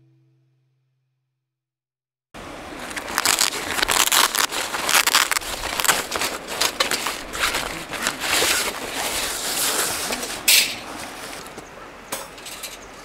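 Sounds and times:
fabric case rustling and crinkling: 0:02.8 - 0:10.4
scraping on wire grill: 0:05.5 - 0:11.5.

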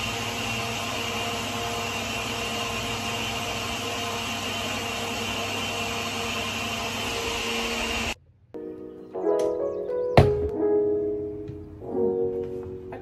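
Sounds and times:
blender motor running: 0:00.0 - 0:08.2.

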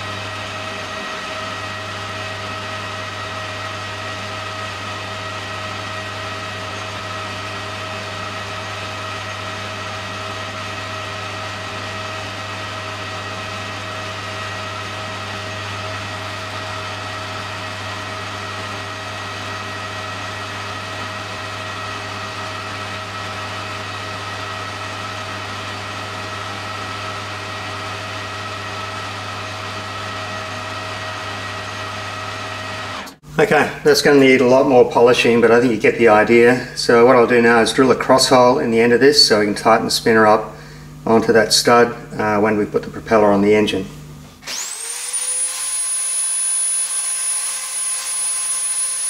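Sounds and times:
metal lathe whining: 0:00.0 - 0:33.2, 0:44.4 - 0:49.0.

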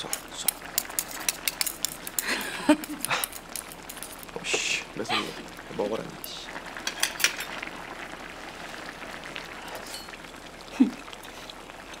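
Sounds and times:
ladle and chopsticks clicking in pot: 0:00.0 - 0:04.2
steady low hiss: 0:00.0 - 0:11.1.

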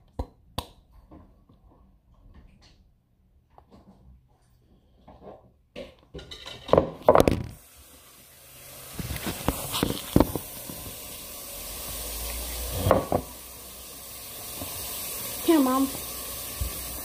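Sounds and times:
dishes knocking and bumping: 0:05.7 - 0:07.6, 0:12.8 - 0:13.4
steady hiss: 0:07.6 - 0:17.0.

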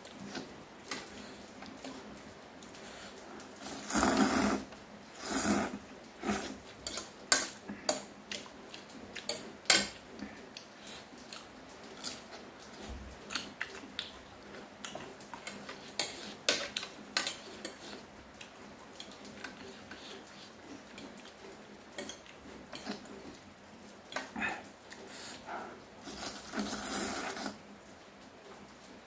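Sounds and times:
chewing: 0:00.0 - 0:23.4
slurping noodles: 0:03.6 - 0:06.7, 0:25.2 - 0:27.6.

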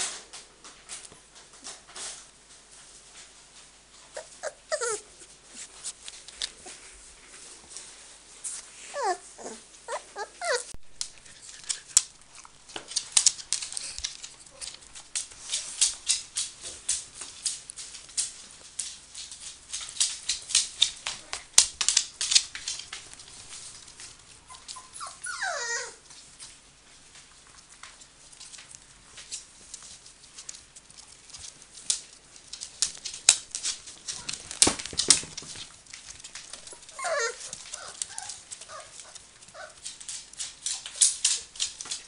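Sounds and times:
paws scrabbling on floor: 0:00.3 - 0:42.0
puppy whining: 0:04.1 - 0:05.6, 0:08.8 - 0:12.0, 0:24.4 - 0:26.1, 0:36.4 - 0:40.1.

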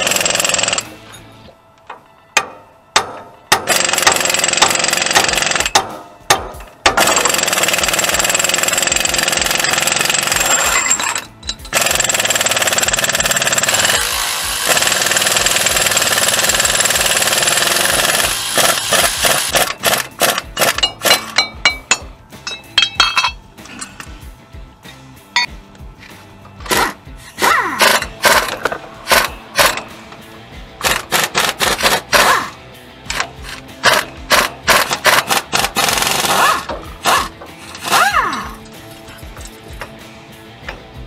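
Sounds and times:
impact wrench hammering: 0:01.9 - 0:23.4, 0:26.6 - 0:30.2, 0:30.8 - 0:32.5, 0:33.1 - 0:38.6.

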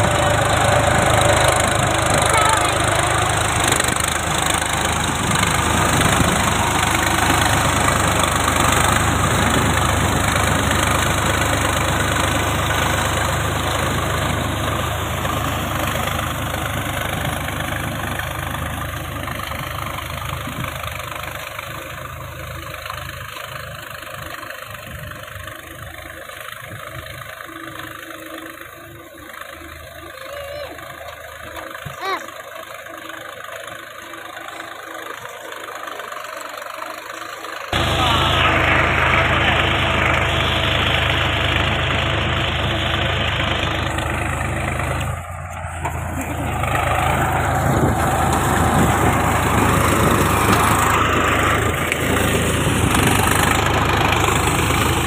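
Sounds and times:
tractor diesel engine under load: 0:00.0 - 0:55.0
rotavator churning wet mud: 0:43.4 - 0:55.0.

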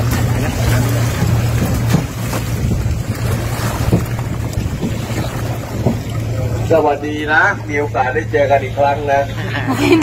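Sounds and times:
footsteps knocking in boat: 0:00.0 - 0:06.5
boat engine idling: 0:00.0 - 0:10.0.

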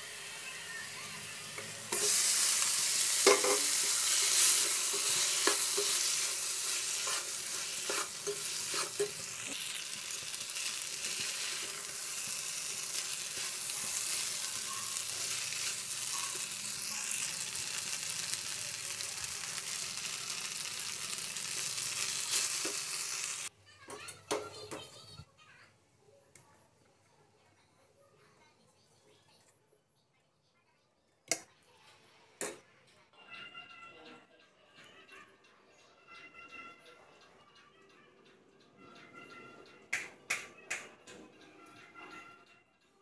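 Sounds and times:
sauce sizzling in a pan: 0:00.0 - 0:23.5.

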